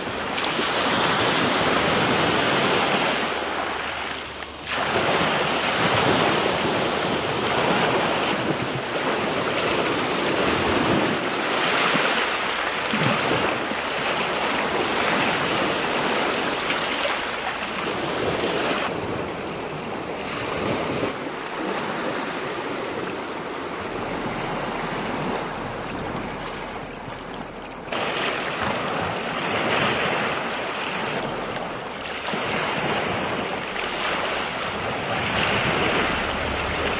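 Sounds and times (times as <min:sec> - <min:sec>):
waves breaking on shingle: 0:20.2 - 0:36.9.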